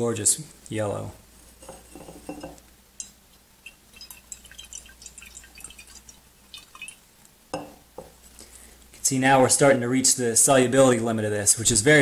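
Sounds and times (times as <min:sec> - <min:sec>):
liquid sloshing in glass flask: 0:03.6 - 0:07.0.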